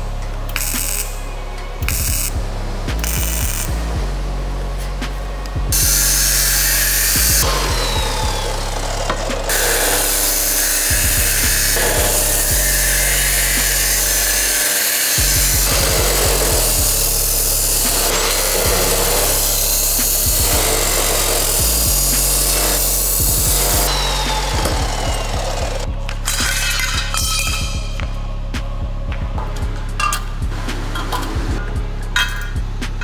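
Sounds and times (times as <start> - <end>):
background music with bass line: 0.0 - 33.0
power tool working on wood: 5.7 - 25.9.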